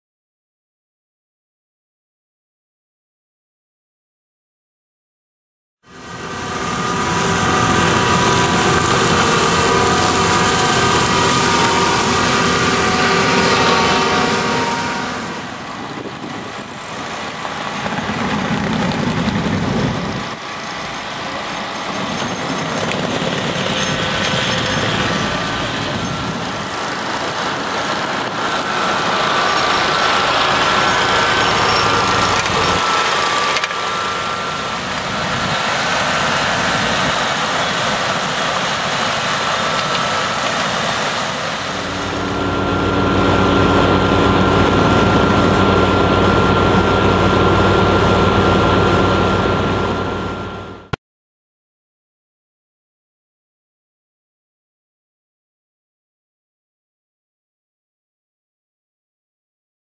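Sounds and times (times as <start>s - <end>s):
water churning and splashing: 5.9s - 49.6s
boat engines running: 5.9s - 51.0s.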